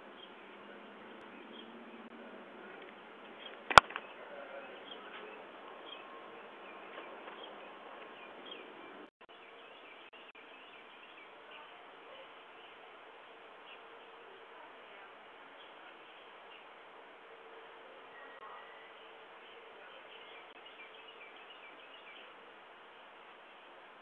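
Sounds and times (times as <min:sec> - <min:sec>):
sharp click: 0:03.6 - 0:04.1.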